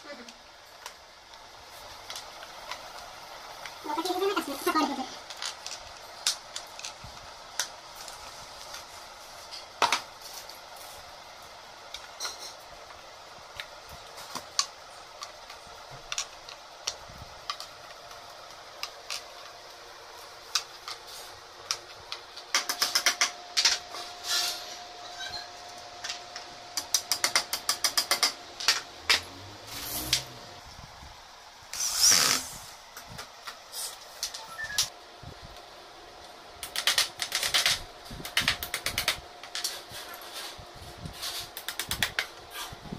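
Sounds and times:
rapid ratchet-like clicking: 22.5 - 23.7, 26.8 - 29.3
furniture fittings clicking and tapping: 26.8 - 29.3.

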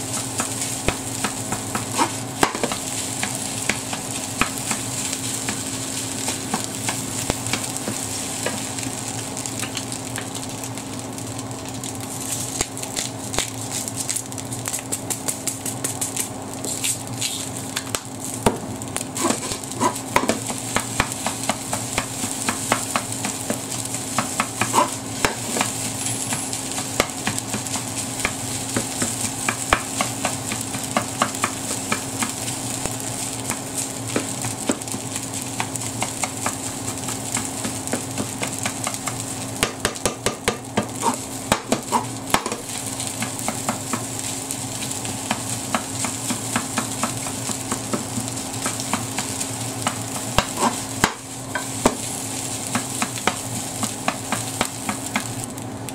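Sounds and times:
rice sizzling in a frying pan: 0.0 - 55.9
spatula scraping and tapping a pan: 45.2 - 55.4.

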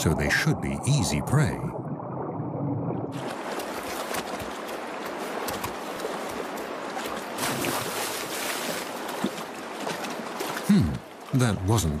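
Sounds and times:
stream running: 0.0 - 12.0
splashing in water: 3.1 - 11.4.

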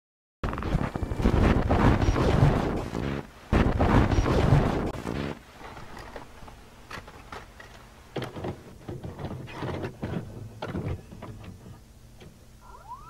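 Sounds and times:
tape mechanism clicking and clunking: 5.6 - 12.5.

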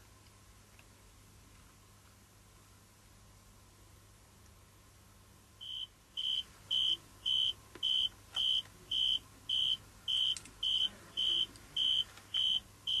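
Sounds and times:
tree cricket chirping: 5.6 - 13.0.

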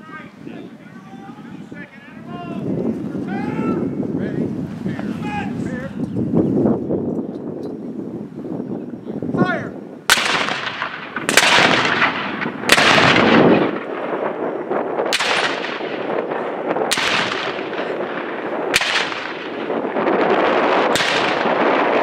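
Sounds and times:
cannons firing loud booms: 10.1 - 22.0.

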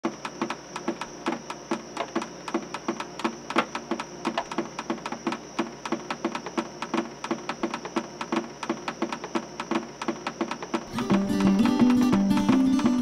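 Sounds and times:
clicking beat: 0.1 - 13.0
light plucked tune: 10.9 - 13.0.

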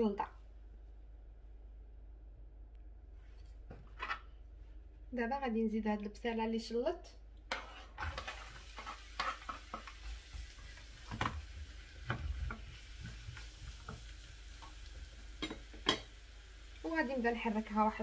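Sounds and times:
wooden spatula scraping and knocking: 3.3 - 4.3, 7.5 - 11.4
onion sizzling in oil: 7.5 - 18.0.

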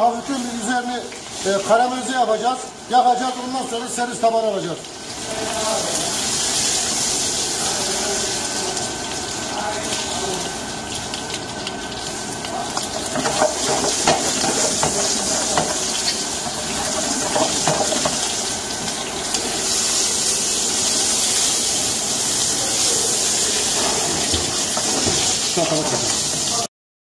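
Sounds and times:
meat sizzling in butter: 0.0 - 2.4, 4.8 - 26.7
utensil knocking against pan: 13.2 - 16.1, 17.0 - 18.2.

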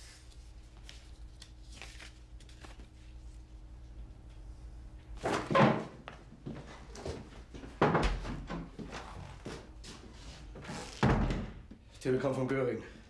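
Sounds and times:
paper sheets rustling: 0.0 - 3.4
low room hum: 0.0 - 13.0.

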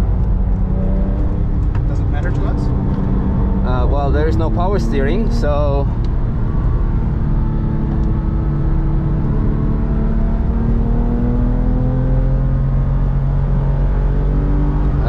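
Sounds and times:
tyre and road rumble: 0.0 - 12.0
car engine revving in cabin: 0.0 - 15.0.

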